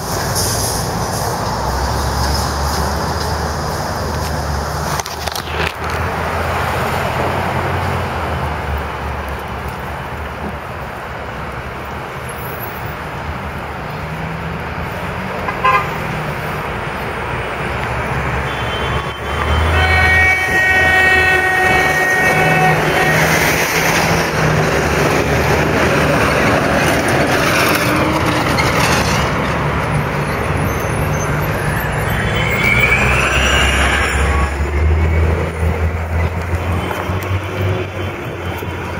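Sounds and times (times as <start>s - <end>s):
street traffic: 0.0s - 38.9s
short horn toot: 18.4s - 23.6s.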